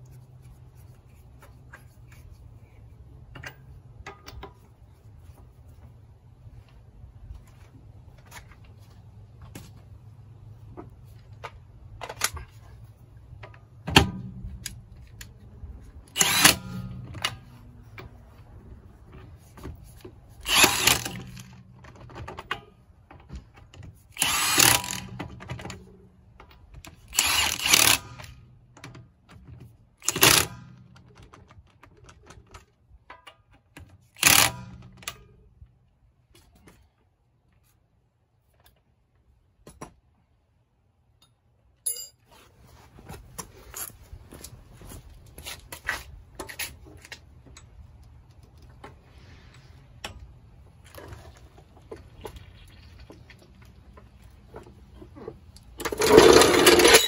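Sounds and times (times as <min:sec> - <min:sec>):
impact wrench bursts: 0:16.1 - 0:17.2, 0:20.4 - 0:21.6, 0:24.1 - 0:25.6, 0:27.1 - 0:28.4, 0:30.0 - 0:30.8, 0:34.2 - 0:35.1, 0:55.9 - 0:57.0.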